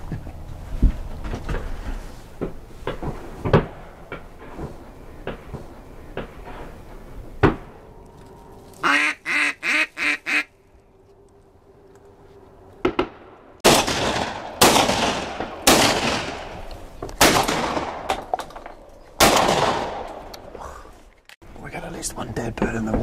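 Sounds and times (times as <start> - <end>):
duck quacking: 8.8 - 10.5
shotgun shots: 12.8 - 16.6, 17.2 - 18.3, 19.2 - 20.2.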